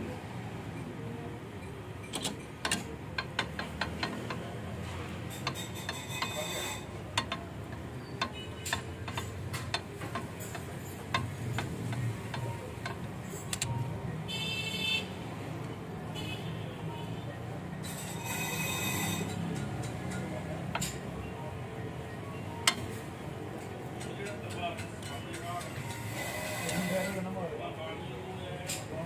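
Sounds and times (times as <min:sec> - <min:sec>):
metallic tool clicks and taps: 0:02.1 - 0:04.5, 0:07.1 - 0:13.8, 0:19.3 - 0:21.0, 0:22.6 - 0:22.9, 0:24.0 - 0:26.0
high ringing: 0:17.8 - 0:19.9.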